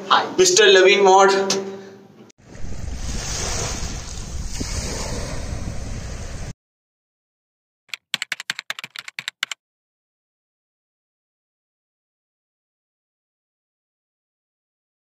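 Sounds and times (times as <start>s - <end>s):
small waves washing onto beach: 2.4s - 6.5s
wind on microphone: 2.4s - 6.5s
typewriter key clicks: 7.9s - 9.6s.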